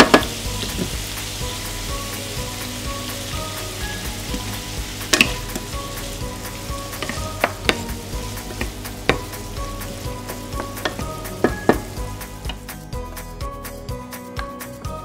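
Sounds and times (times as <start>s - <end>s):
food sizzling in a frying pan: 0.0s - 12.8s
wooden spatula scraping a pan: 4.2s - 11.9s.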